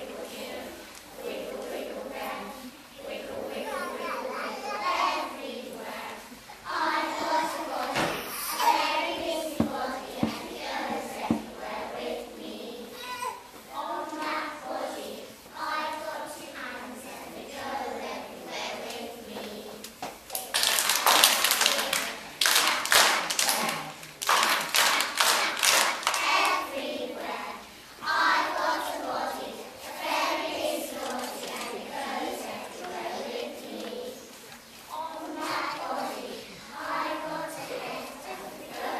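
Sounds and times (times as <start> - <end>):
children singing: 0.0 - 19.8, 20.5 - 38.9
hand clapping: 20.3 - 26.6.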